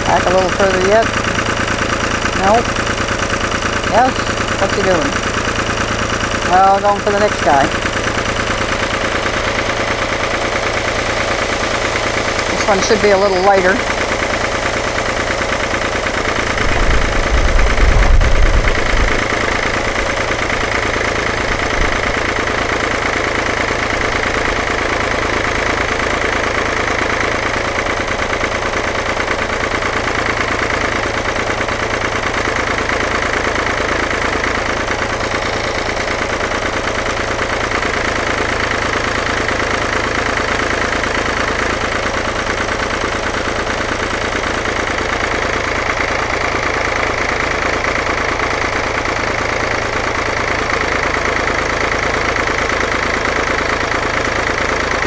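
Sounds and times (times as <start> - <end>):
tractor engine running: 0.0 - 55.0
deep low rumble: 16.6 - 20.1.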